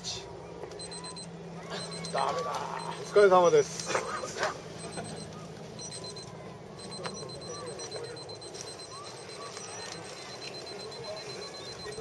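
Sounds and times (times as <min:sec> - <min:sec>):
faint distant voices: 0:00.0 - 0:12.0
outdoor background noise: 0:00.0 - 0:12.0
high-pitched electronic tone: 0:00.8 - 0:03.0, 0:04.8 - 0:12.0.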